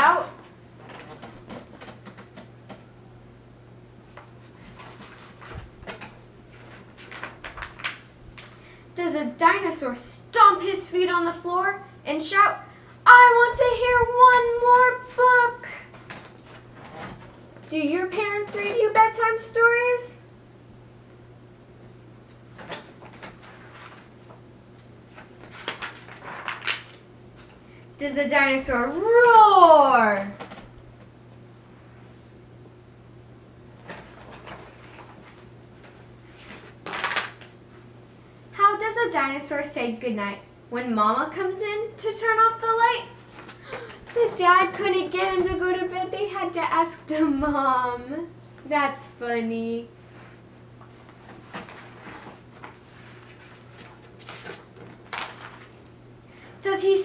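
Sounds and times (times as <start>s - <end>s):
low electrical hum: 0.0s - 57.0s
book pages rustling: 4.2s - 8.7s, 15.9s - 17.4s, 22.6s - 27.6s, 33.8s - 37.9s, 43.2s - 44.8s, 50.2s - 55.8s.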